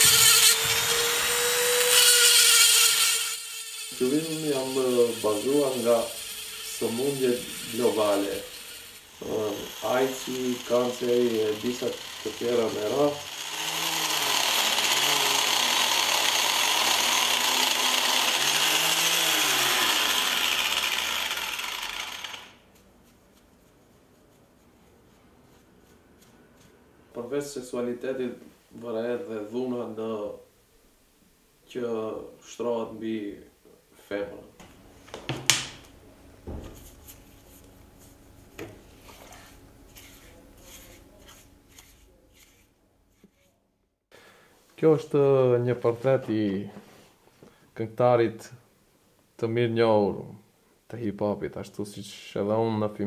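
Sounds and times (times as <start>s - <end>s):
power sander grinding stone: 0.0s - 22.7s, 39.0s - 42.6s
brush scrubbing stone: 4.0s - 12.9s, 22.7s - 26.8s, 38.9s - 43.5s.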